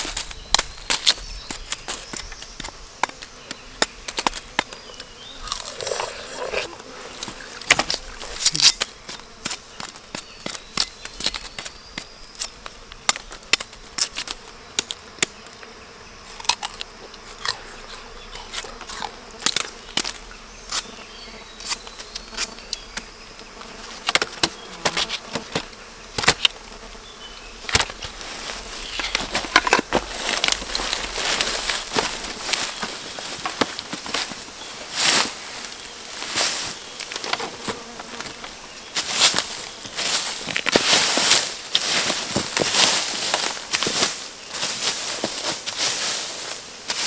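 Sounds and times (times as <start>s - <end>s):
sharp snaps and crackles: 0.0s - 15.6s, 16.3s - 21.0s, 24.0s - 26.6s, 27.6s - 34.4s, 35.0s - 44.2s
insect buzzing: 0.0s - 47.0s.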